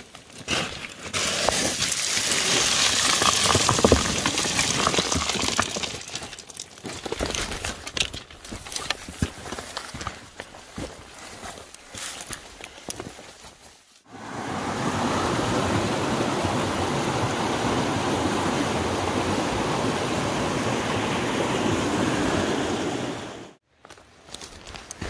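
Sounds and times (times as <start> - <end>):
footsteps crunching through dry scrub: 6.6 - 14.1, 23.7 - 25.0
creek rushing: 14.1 - 23.6.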